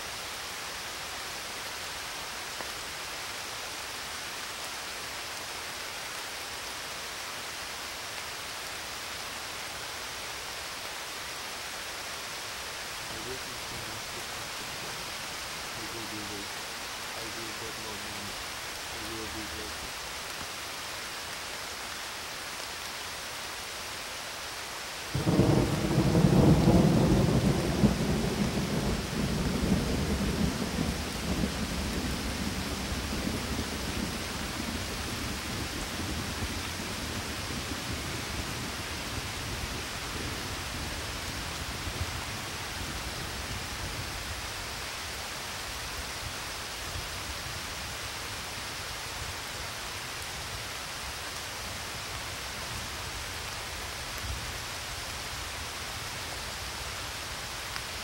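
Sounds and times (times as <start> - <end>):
rain hiss: 0.0 - 58.0
thunder rumbling: 25.2 - 39.4.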